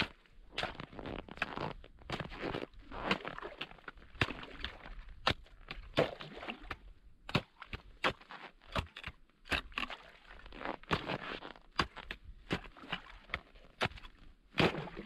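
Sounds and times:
broken ice crunching and scraping: 0.0s - 15.0s
ice chisels striking ice: 7.3s - 10.0s, 13.3s - 14.8s.

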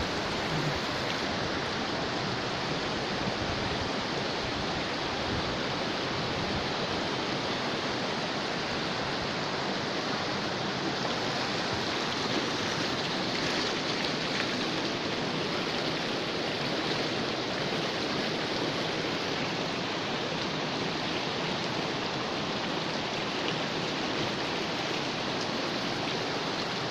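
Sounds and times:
stream rushing over stones: 0.0s - 26.9s.

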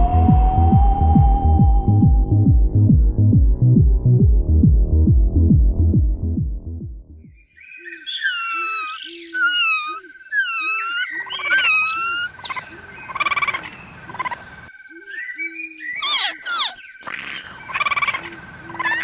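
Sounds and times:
chirping whistling calls: 0.0s - 2.5s, 7.4s - 19.0s.

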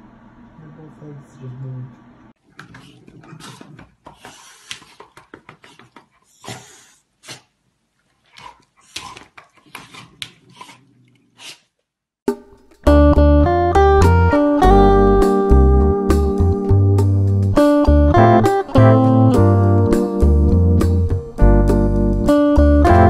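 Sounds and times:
cat and dog play-fighting: 2.4s - 11.8s.

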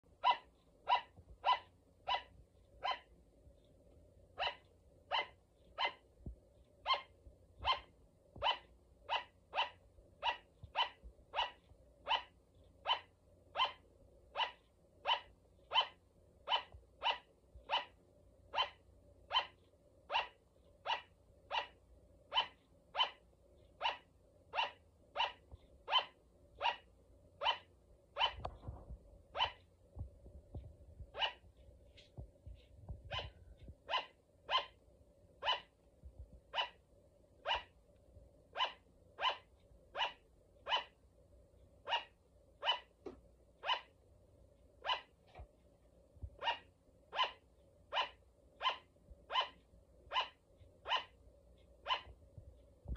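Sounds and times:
sugar glider barking: 0.1s - 3.2s, 4.3s - 6.1s, 6.8s - 28.7s, 29.3s - 29.7s, 31.1s - 31.5s, 33.0s - 34.8s, 35.4s - 35.8s, 36.5s - 36.8s, 37.4s - 37.8s, 38.5s - 41.0s, 41.8s - 44.0s, 44.8s - 45.4s, 46.4s - 51.2s, 51.8s - 52.2s.

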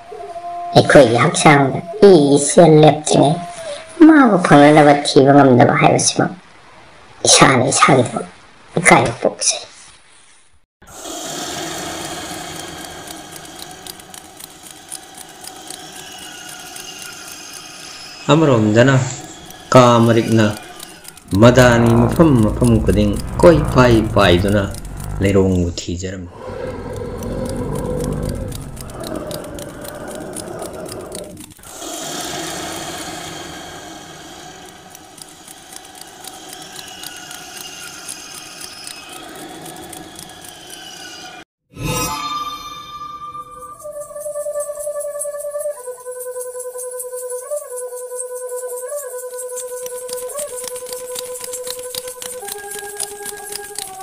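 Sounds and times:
cartoon insect wings whirring: 10.9s - 25.8s, 26.4s - 41.4s, 43.6s - 54.0s
small clicks and ticks: 11.0s - 25.8s, 26.4s - 41.4s, 44.2s - 54.0s.

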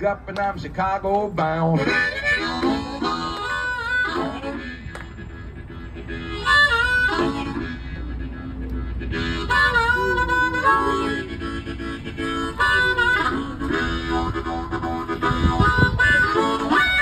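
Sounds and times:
harmonica playing: 0.0s - 17.0s.

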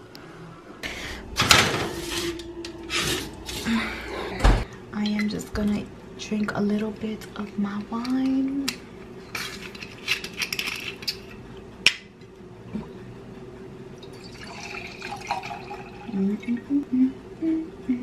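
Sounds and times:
wine pouring into glass: 14.0s - 16.2s.

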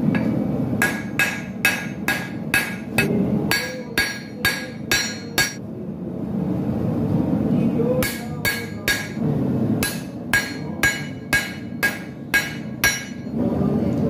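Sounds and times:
hammer striking hot metal on anvil: 0.1s - 5.6s, 8.0s - 9.2s, 9.8s - 13.4s.

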